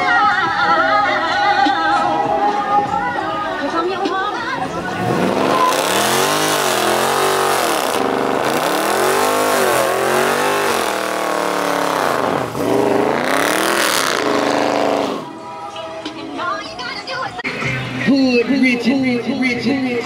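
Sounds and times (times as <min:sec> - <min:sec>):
car engine revving: 0:04.8 - 0:15.4.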